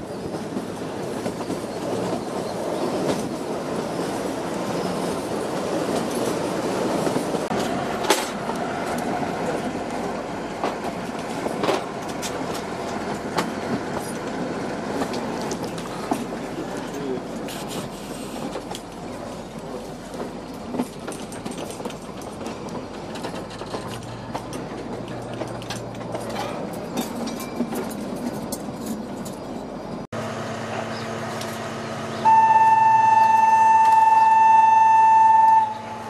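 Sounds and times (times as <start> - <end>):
wheels clicking over rail joints: 0.0 - 30.1
diesel locomotive engine: 0.0 - 36.0
locomotive horn blast: 32.2 - 36.0.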